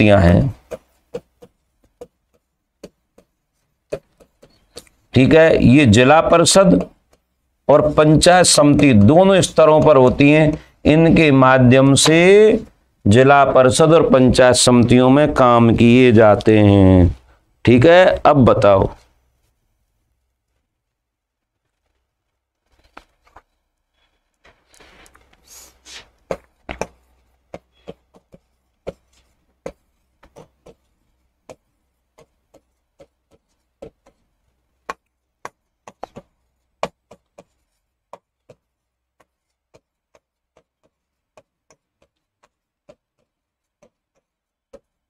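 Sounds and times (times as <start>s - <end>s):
pen scraping on paper: 0.2s - 4.9s, 24.0s - 45.0s
pen tapping: 0.4s - 5.1s, 6.6s - 7.9s, 8.7s - 10.7s, 26.2s - 45.0s.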